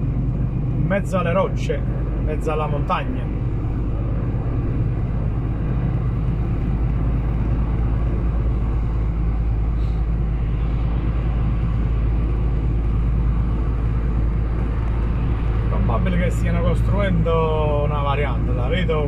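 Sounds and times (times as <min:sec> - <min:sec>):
lorry engine drone in cab: 0:00.0 - 0:19.0.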